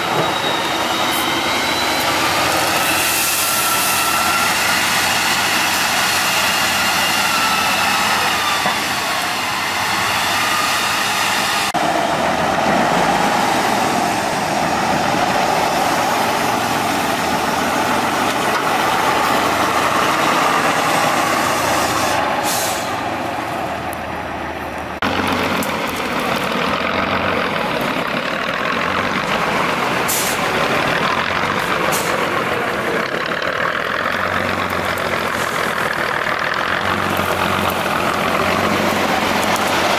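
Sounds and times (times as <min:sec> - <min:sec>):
heavy truck engine labouring: 0:00.0 - 0:39.9
short hisses: 0:21.9 - 0:23.0.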